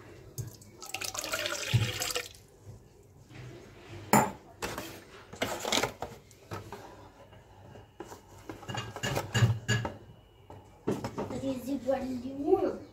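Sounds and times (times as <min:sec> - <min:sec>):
juice splashing into steel bowl: 0:00.4 - 0:02.4.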